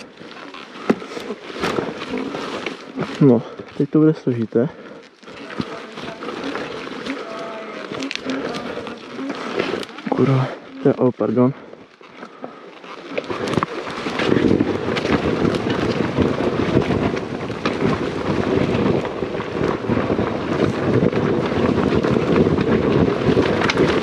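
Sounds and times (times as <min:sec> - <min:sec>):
dirt bike engine running: 0:13.2 - 0:24.0
wind on microphone: 0:13.3 - 0:24.0.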